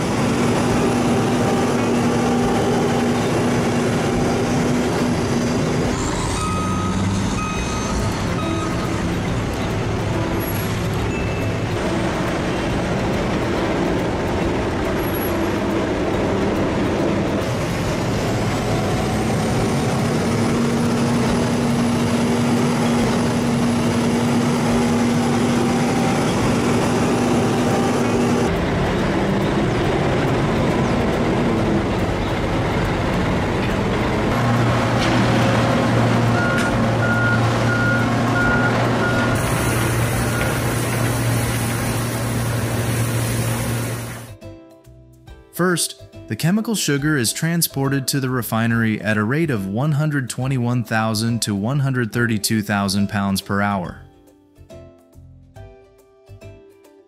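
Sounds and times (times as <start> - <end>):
heavy machinery and trucks running: 0.0 - 44.4
reversing alarm beeping: 5.9 - 9.5, 10.2 - 11.6, 36.2 - 41.0.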